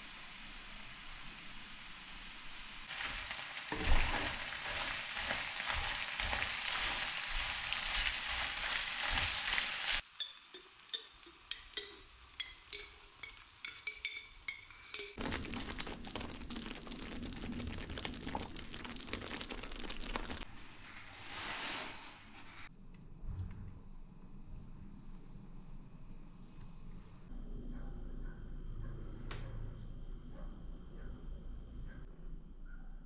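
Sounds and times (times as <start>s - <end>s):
food sizzling in a pan: 0.0s - 20.5s.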